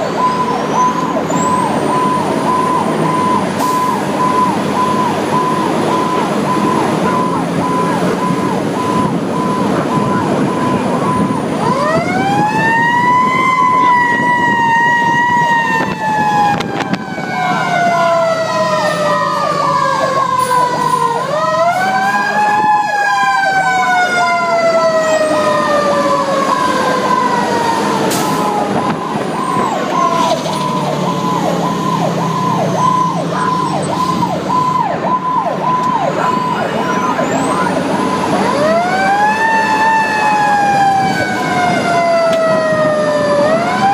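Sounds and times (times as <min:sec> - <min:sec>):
fire engine siren wailing: 0:00.0 - 0:43.9
pulsing siren tone: 0:00.0 - 0:43.9.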